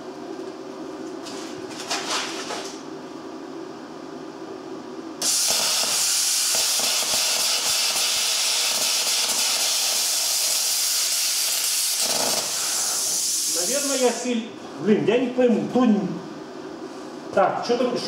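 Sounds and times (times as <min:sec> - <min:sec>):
steady low hum: 0:00.0 - 0:10.4, 0:12.0 - 0:18.0
metal crackling as cut: 0:05.2 - 0:12.6
plasma cutter hissing: 0:05.2 - 0:14.4.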